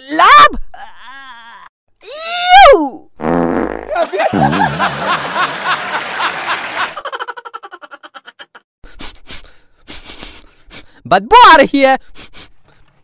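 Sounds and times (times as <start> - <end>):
cartoon fart sound: 3.2 - 4.9.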